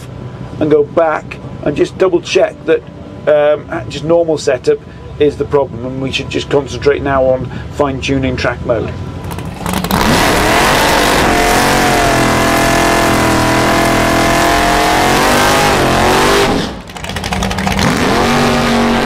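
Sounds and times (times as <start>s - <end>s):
car engine revving high: 9.6s - 19.0s
tyres spinning on tarmac: 16.6s - 18.0s.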